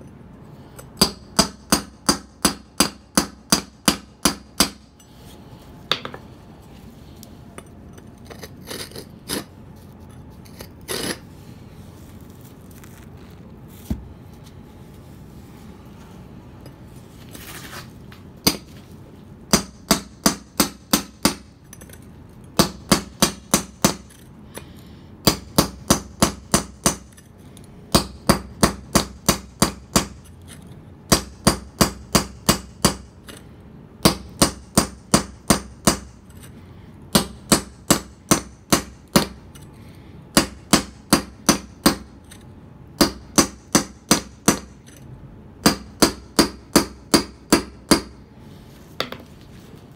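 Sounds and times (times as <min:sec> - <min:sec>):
hammer striking steel chisel: 0:00.8 - 0:05.0, 0:19.5 - 0:21.9, 0:34.0 - 0:36.4, 0:40.4 - 0:42.4, 0:43.0 - 0:45.0, 0:45.6 - 0:48.2.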